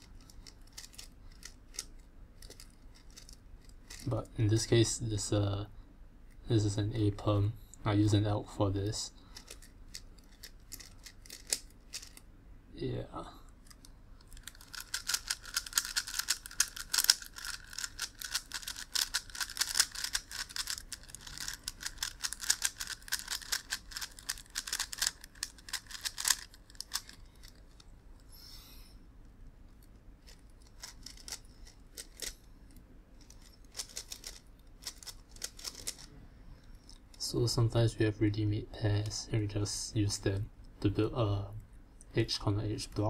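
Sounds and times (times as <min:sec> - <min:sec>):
plastic puzzle clicking: 0:00.0 - 0:04.0, 0:09.4 - 0:12.2, 0:13.6 - 0:27.8, 0:30.2 - 0:36.1.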